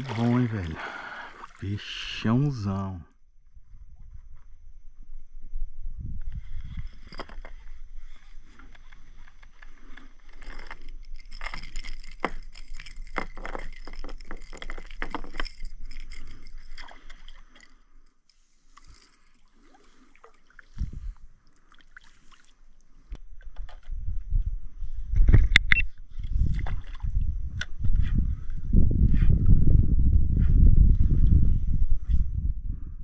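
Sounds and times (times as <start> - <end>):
fish thrashing and splashing: 0.0 - 1.6, 10.2 - 17.8.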